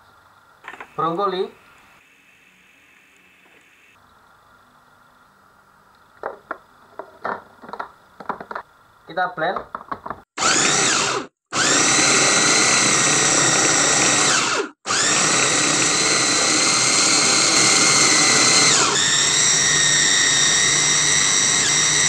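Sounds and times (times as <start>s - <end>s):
food chopper motor whining: 10.4s - 22.0s.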